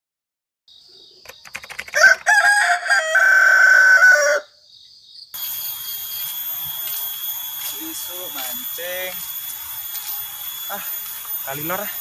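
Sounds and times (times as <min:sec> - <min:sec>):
rooster crowing: 0:02.0 - 0:04.6
high hiss of outdoor ambience: 0:04.6 - 0:12.0.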